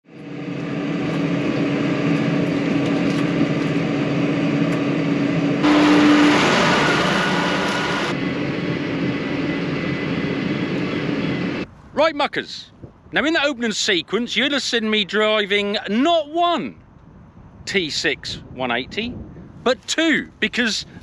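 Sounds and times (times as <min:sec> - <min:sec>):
tractor engine droning: 0:00.1 - 0:11.6
loud rushing noise: 0:05.6 - 0:10.8.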